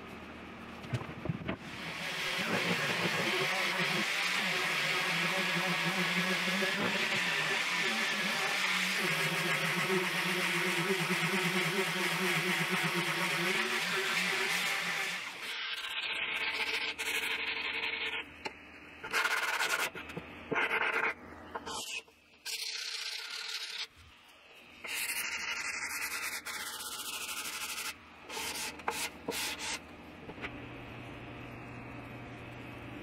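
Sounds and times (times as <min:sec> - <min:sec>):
sandpaper rubbing on wood: 0:01.7 - 0:15.4, 0:25.9 - 0:29.8.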